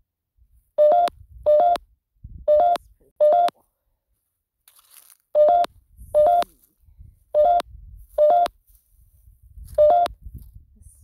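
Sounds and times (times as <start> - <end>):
electronic blips from phone speaker: 2.5 - 3.6, 5.4 - 6.5, 7.4 - 8.6, 9.7 - 10.2.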